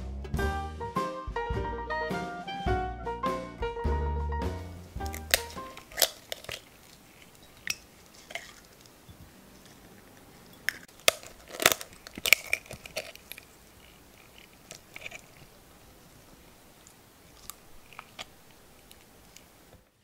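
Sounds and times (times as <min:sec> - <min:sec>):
jazzy music: 0:00.0 - 0:06.6
eggshell cracking: 0:05.0 - 0:19.9.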